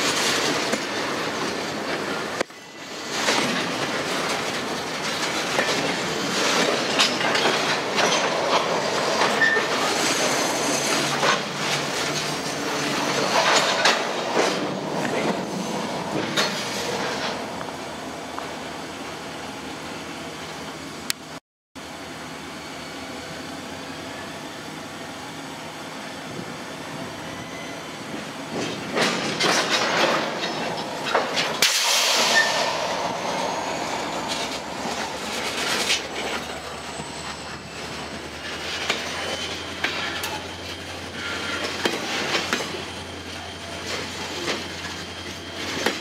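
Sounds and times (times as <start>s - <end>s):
wheels clicking over rail joints: 0.0s - 18.6s, 28.1s - 46.0s
rush of noise: 0.0s - 20.0s, 28.5s - 39.4s
faint wheel squeal: 9.2s - 11.5s, 27.0s - 28.2s, 32.2s - 46.0s.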